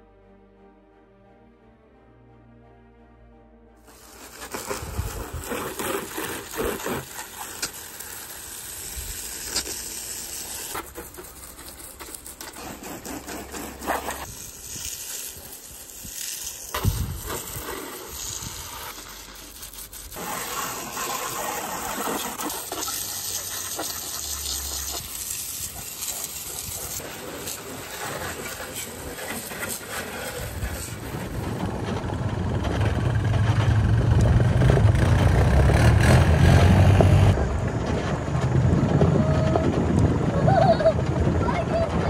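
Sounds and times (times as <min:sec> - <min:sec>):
hose spray hissing on plastic: 0:03.8 - 0:31.3.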